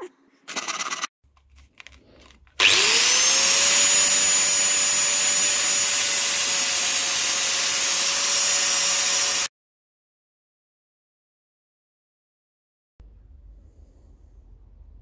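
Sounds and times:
angle grinder whine: 2.6s - 9.5s.

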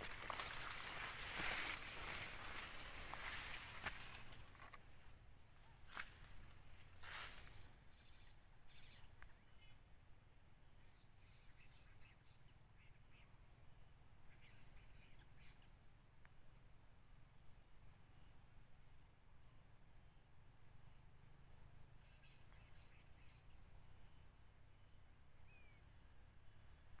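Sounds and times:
insect trilling: 0.0s - 4.7s.

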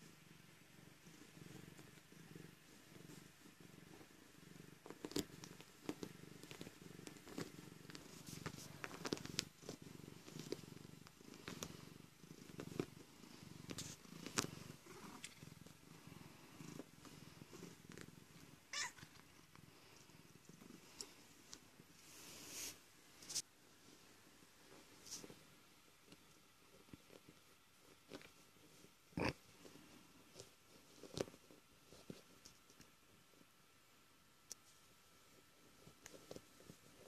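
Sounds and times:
cat purring: 0.0s - 37.0s.

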